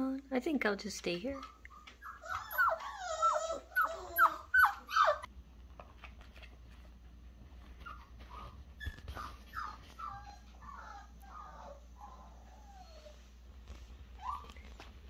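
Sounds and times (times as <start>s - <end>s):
puppy whining: 1.3s - 5.3s, 7.6s - 15.0s.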